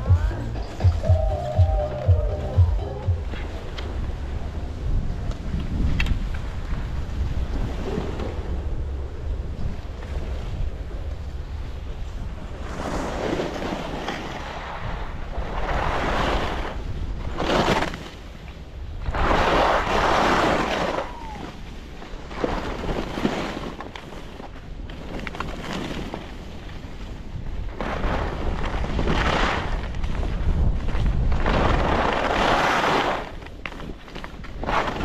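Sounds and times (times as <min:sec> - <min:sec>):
wind buffeting microphone: 0:00.0 - 0:23.3, 0:24.6 - 0:35.0
skis scraping over snow: 0:12.0 - 0:35.0.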